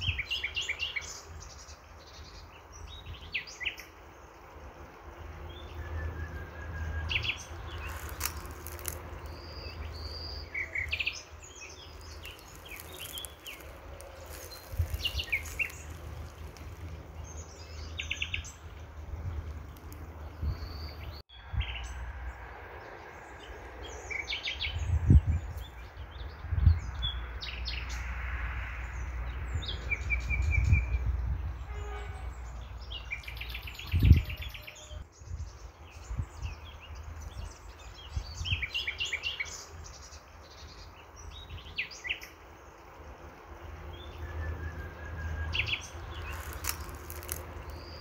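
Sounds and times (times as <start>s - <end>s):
small birds chirping: 5.4s - 22.0s, 32.2s - 48.0s.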